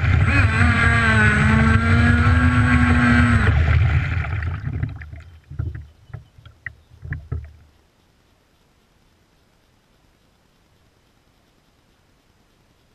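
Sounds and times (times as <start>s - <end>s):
boat hull rushing through water: 0.0s - 7.7s
water slapping against hull: 1.5s - 7.7s.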